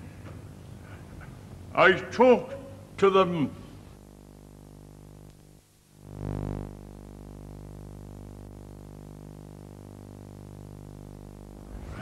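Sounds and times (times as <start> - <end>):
electrical hum with buzz: 0.0 - 12.0
dull burst of noise: 3.6 - 12.0.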